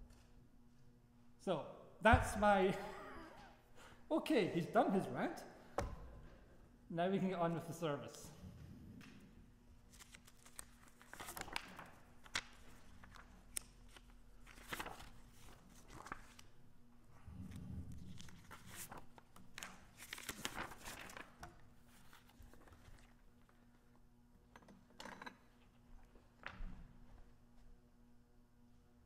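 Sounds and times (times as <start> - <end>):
low steady hum: 0.0 - 20.8.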